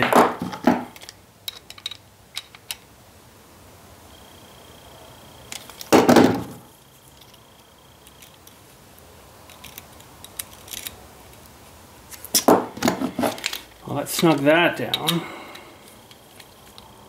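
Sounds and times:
hand tools clattering: 0:12.3 - 0:16.5.

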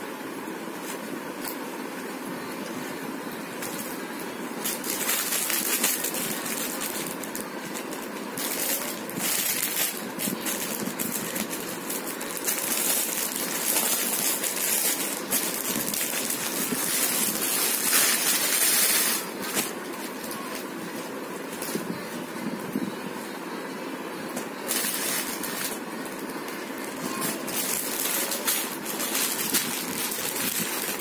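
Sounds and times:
steady background noise: 0:00.0 - 0:31.0
plastic packaging crinkling: 0:04.6 - 0:20.7, 0:24.6 - 0:31.0.

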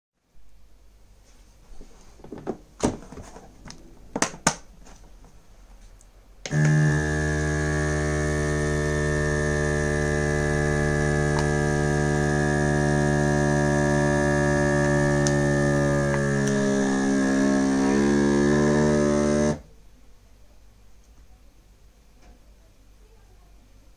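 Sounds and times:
vacuum sealer pump humming: 0:06.4 - 0:19.7.

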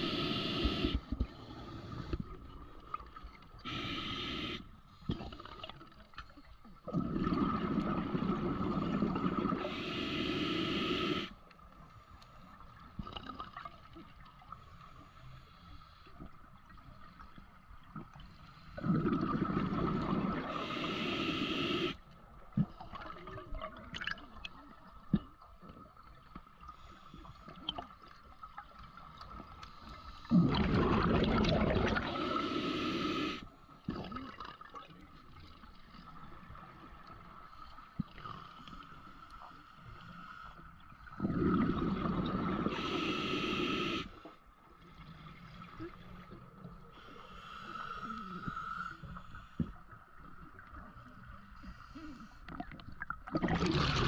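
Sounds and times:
faint clicking and crackling: 0:04.9 - 0:08.1, 0:21.9 - 0:30.6, 0:33.5 - 0:41.1
exhaled bubbles underwater: 0:06.8 - 0:11.3, 0:17.9 - 0:21.9, 0:30.2 - 0:37.3, 0:41.0 - 0:44.1, 0:52.5 - 0:54.0.

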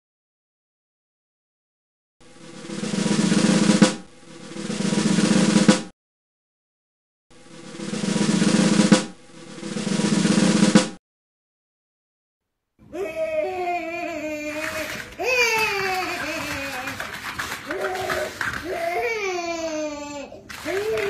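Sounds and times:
snare drum rolls: 0:02.2 - 0:05.9, 0:07.4 - 0:11.0, 0:14.6 - 0:19.0, 0:20.5 - 0:21.0.

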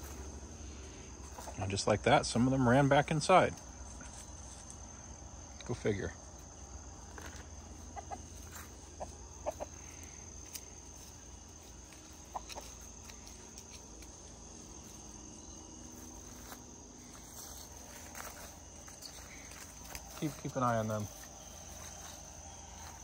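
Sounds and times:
high drone of insects: 0:00.0 - 0:23.0
chickens clucking: 0:06.7 - 0:16.4.

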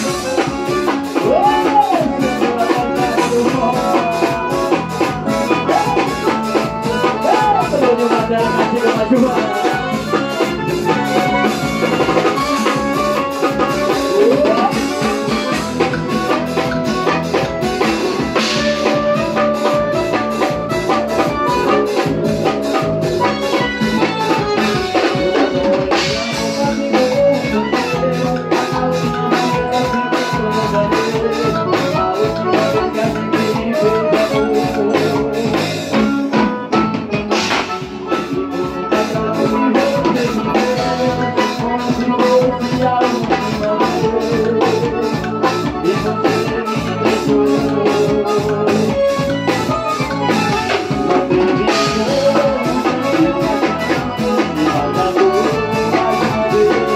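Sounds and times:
accordion melody: 0:00.0 - 0:56.9
drum kit: 0:00.0 - 0:56.9
electric bass: 0:00.0 - 0:56.9.

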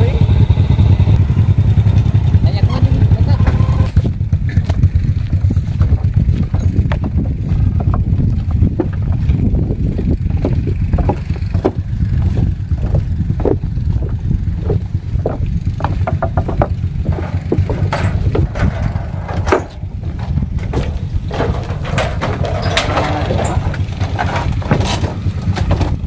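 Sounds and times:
low rumble: 0:00.0 - 0:26.0
footsteps on wooden planks: 0:03.9 - 0:26.0.

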